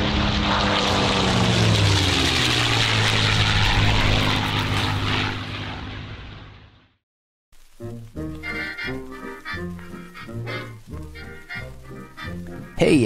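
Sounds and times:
propeller airplane flying by: 0:00.0 - 0:07.0.

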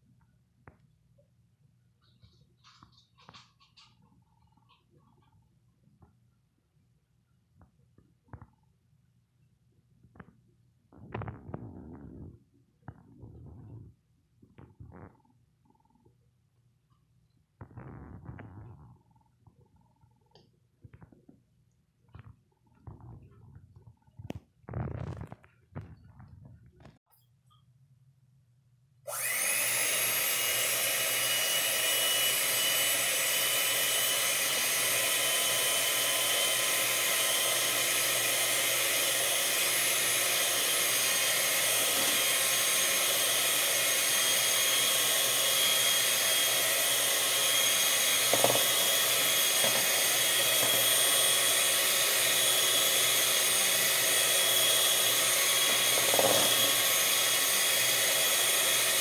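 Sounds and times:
electric mixer whirring: 0:29.1 - 0:59.0.

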